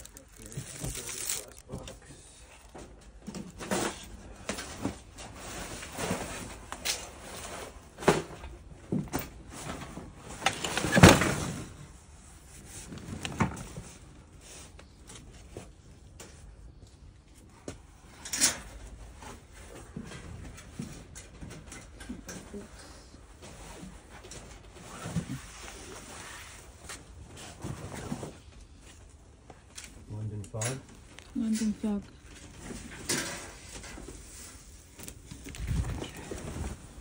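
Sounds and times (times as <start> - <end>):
items knocking and scraping: 0.0 - 2.0.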